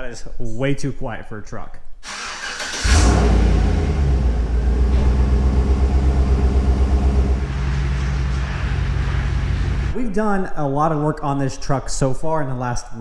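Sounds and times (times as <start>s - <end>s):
pickup engine starting and idling: 2.0s - 9.9s.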